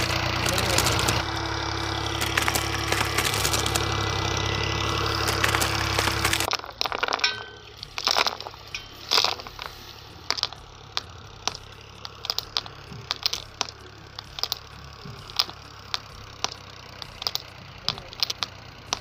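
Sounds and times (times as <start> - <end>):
grains dropping into plastic bowl: 5.2 - 19.0.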